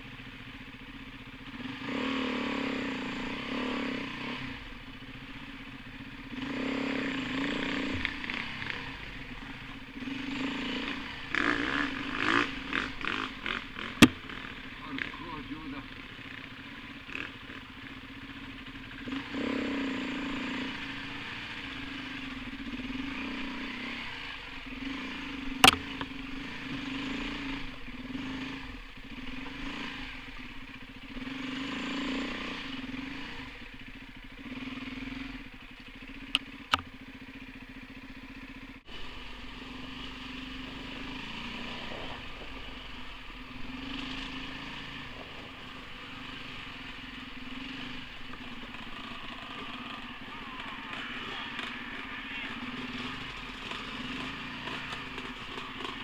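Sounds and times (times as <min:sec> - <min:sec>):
motorcycle engine revving: 0:00.0 - 0:56.0
sharp knock: 0:14.0 - 0:14.2.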